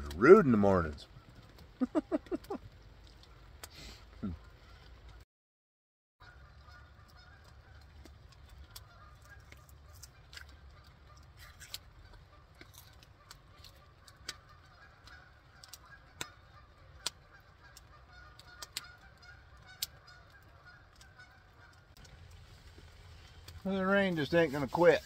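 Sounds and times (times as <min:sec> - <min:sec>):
sharp ticks and pops: 0:00.0 - 0:05.2, 0:06.7 - 0:25.0
geese honking: 0:06.2 - 0:25.0.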